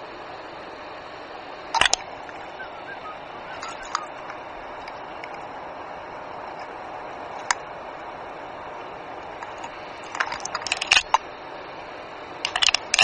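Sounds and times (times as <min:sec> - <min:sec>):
steady hiss: 0:00.0 - 0:13.0
twigs scraping against helmet camera: 0:01.8 - 0:02.5, 0:03.5 - 0:05.5, 0:06.4 - 0:07.6, 0:09.2 - 0:11.2, 0:12.4 - 0:13.0.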